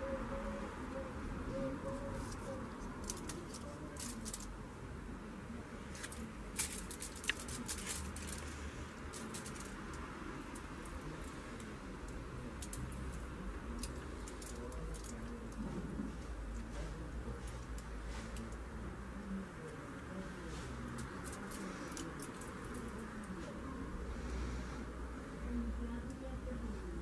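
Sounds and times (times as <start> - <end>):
low background noise: 0.0 - 27.0
clicks and crinkles on foil: 3.0 - 4.5, 6.0 - 11.7.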